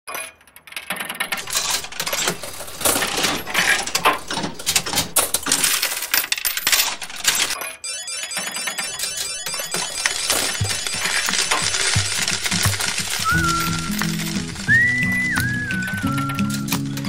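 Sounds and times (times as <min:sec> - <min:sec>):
coins jingling and dropping: 0:01.2 - 0:07.6, 0:09.0 - 0:14.7.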